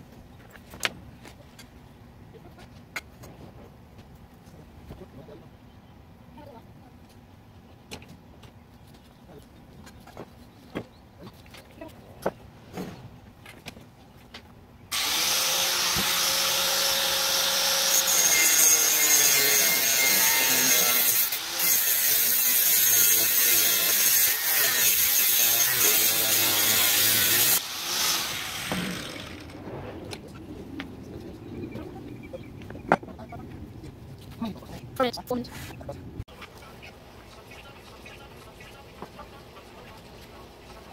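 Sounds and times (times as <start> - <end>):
angle grinder cutting metal: 14.9 - 29.6.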